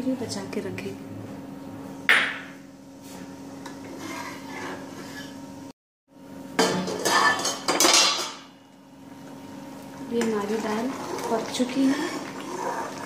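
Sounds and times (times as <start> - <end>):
ladle scraping metal pot: 3.6 - 5.5, 10.4 - 13.0.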